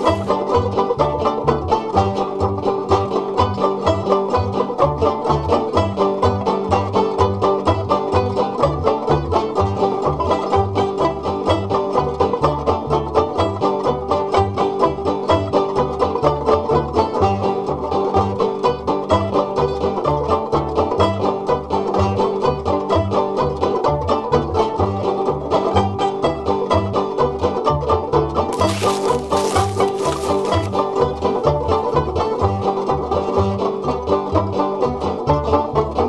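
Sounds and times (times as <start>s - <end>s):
string-band music: 0.0s - 14.1s.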